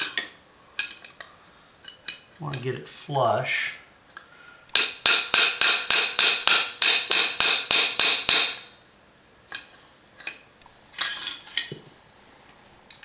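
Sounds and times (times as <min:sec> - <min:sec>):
small hammer tapping metal rod: 0:04.8 - 0:08.7.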